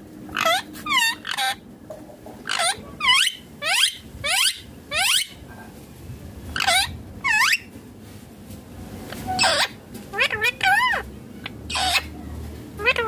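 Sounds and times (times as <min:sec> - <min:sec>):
parakeet calling: 0:00.3 - 0:01.6, 0:02.4 - 0:05.4, 0:06.5 - 0:07.7, 0:09.2 - 0:12.2, 0:12.8 - 0:13.0.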